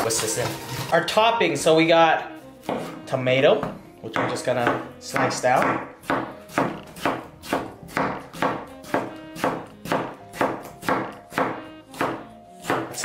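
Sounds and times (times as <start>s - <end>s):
knife slicing tomato: 4.6s - 13.0s.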